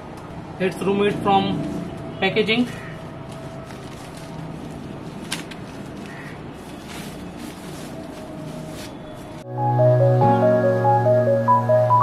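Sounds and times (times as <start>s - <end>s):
plastic wrap rustling and crinkling: 3.0s - 9.4s.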